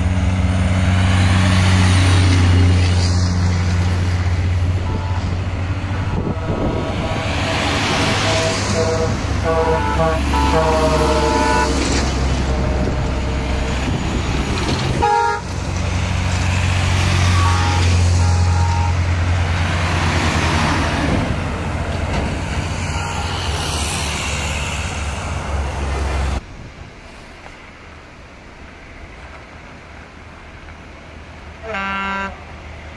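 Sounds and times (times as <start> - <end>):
diesel trucks rumbling past: 0.0 - 32.9
truck horn toots: 4.7 - 14.0, 15.0 - 15.6, 17.2 - 19.1, 22.8 - 23.7, 31.6 - 32.4.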